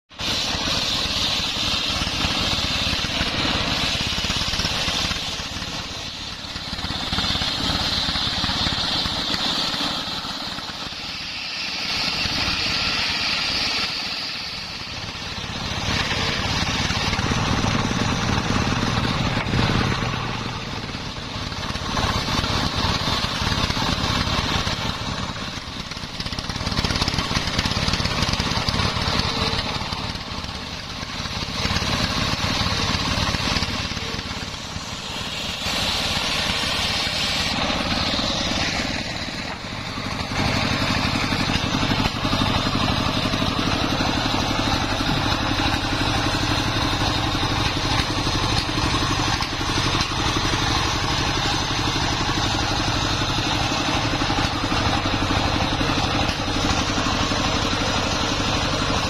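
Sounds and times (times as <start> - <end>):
saw blade whining through wood: 0.1 - 59.0
stationary engine running: 0.1 - 59.0.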